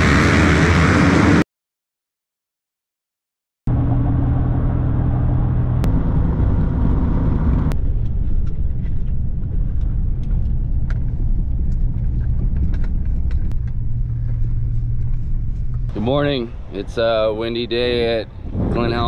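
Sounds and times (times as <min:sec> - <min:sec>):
vehicle engine droning: 0:00.0 - 0:01.4, 0:03.7 - 0:19.0
wind rumbling on microphone: 0:03.7 - 0:19.0.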